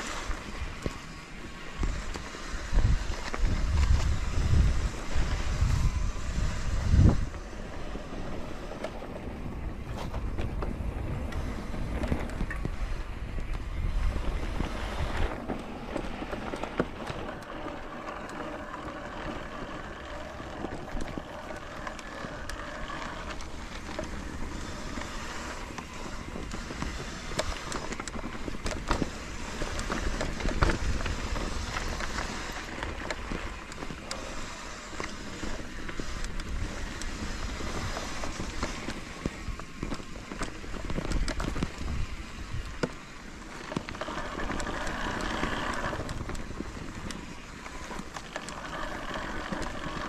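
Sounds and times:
bicycle rolling on trail: 0.0 - 50.0
wind buffeting microphone: 0.0 - 50.0
small clicks and rattles: 15.1 - 50.0.

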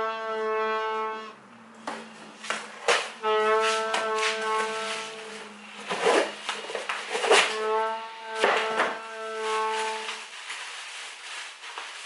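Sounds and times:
plastic wrapping rustling: 2.1 - 7.7, 8.3 - 12.0
cardboard parcel being opened: 2.4 - 7.7, 8.4 - 12.0.

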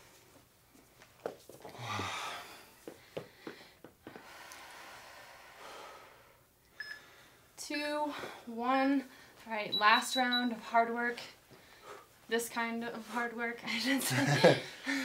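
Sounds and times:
people breathing heavily: 1.6 - 6.4, 11.5 - 12.2, 14.4 - 15.0.

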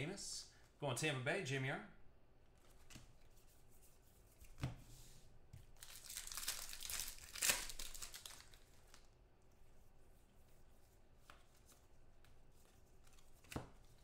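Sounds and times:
foil wrapper tearing and crinkling: 5.8 - 9.1.

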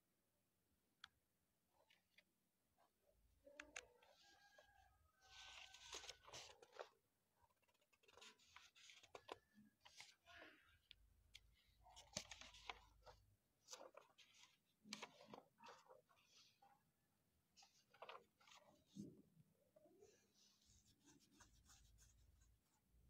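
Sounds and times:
paper pages rustling: 5.3 - 10.2, 11.3 - 16.6, 17.6 - 19.1.

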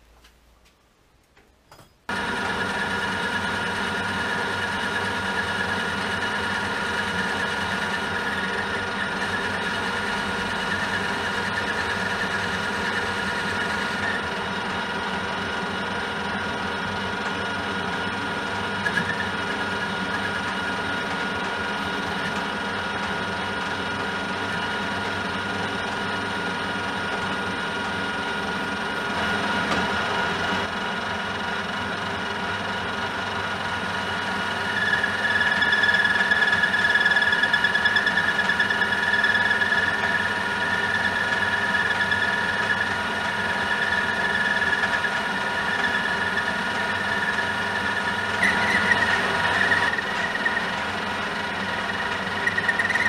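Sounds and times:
metal lathe running: 2.1 - 53.0
high-pitched cutting squeal: 2.5 - 14.4, 17.5 - 25.5, 34.5 - 53.0.

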